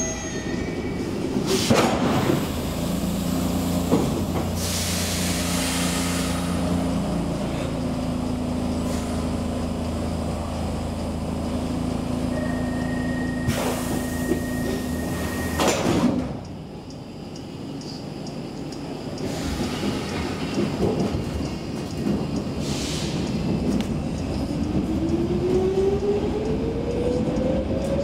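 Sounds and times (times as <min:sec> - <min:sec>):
train equipment low hum: 0:00.0 - 0:28.0
air release hiss: 0:04.5 - 0:06.6.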